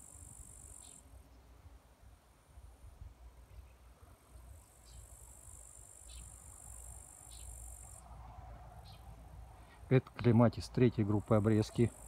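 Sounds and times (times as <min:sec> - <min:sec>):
insect trilling: 0:00.0 - 0:01.0, 0:04.9 - 0:08.0
faint chirps: 0:00.0 - 0:01.5, 0:03.5 - 0:08.0.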